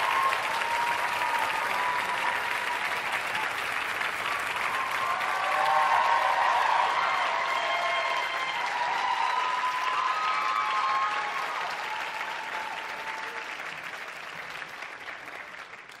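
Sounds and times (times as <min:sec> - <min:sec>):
audience cheering and whooping: 0:00.0 - 0:13.6
audience applauding: 0:00.0 - 0:16.0.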